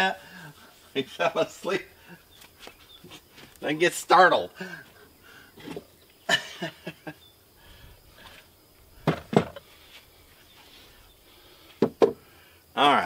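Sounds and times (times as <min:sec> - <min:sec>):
hand tools knocking on wood: 0:11.8 - 0:12.2.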